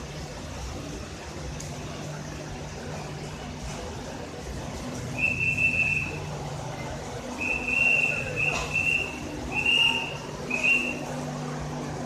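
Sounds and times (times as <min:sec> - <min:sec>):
whistle blasts: 0:05.2 - 0:06.2, 0:07.4 - 0:11.1.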